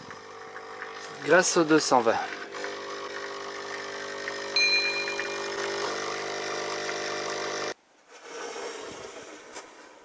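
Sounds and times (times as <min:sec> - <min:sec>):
espresso machine pump humming: 0:00.0 - 0:07.8
espresso pouring: 0:00.0 - 0:07.8.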